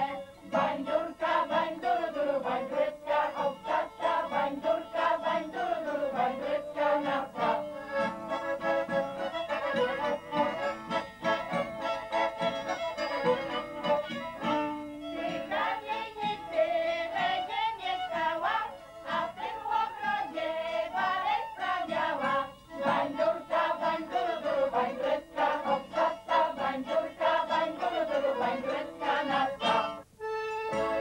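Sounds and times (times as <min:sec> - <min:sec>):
group singing in chorus: 0:00.0 - 0:08.2, 0:15.2 - 0:30.0
accordion: 0:00.0 - 0:31.0
fiddle: 0:00.0 - 0:31.0.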